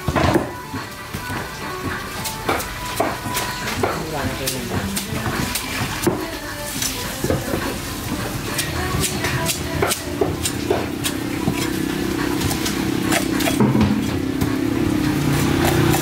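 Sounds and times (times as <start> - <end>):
knife scraping fish: 8.4 - 13.6
engine hum: 9.7 - 16.0.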